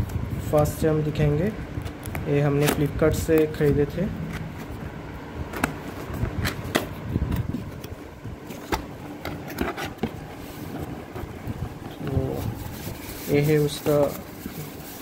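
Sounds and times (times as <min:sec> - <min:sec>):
cardboard scraping and sliding: 0:08.4 - 0:15.0.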